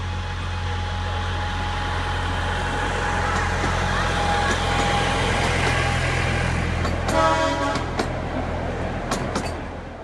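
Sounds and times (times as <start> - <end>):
diesel locomotive engine running: 0.0 - 10.0
train horn toot: 7.1 - 8.0.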